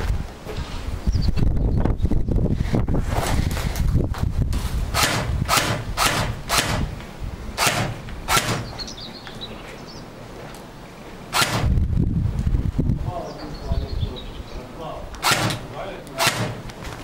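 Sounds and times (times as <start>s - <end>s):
wind rumble on microphone: 0.0s - 9.0s, 11.4s - 15.2s
airsoft rifle shots: 4.9s - 6.9s, 7.6s - 8.8s, 11.3s - 11.8s, 15.2s - 16.7s.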